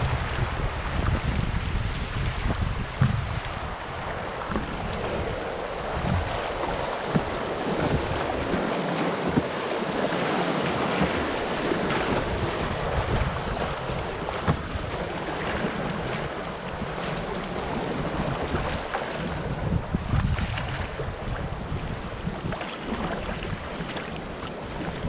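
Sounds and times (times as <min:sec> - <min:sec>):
whitewater rushing: 0:00.0 - 0:19.9
wind rumbling on microphone: 0:00.0 - 0:25.0.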